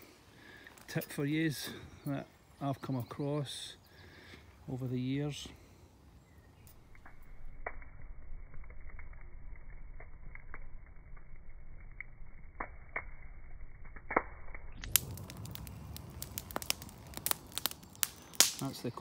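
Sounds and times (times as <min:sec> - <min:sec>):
campfire crackling and popping: 0:03.9 - 0:19.0.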